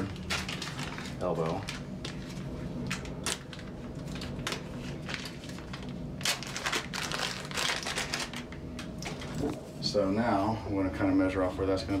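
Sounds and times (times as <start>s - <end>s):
plastic packet crinkling: 0.0s - 9.4s.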